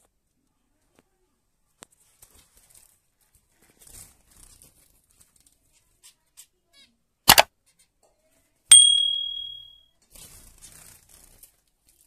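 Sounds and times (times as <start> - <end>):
sharp metallic ding: 8.7 - 9.8.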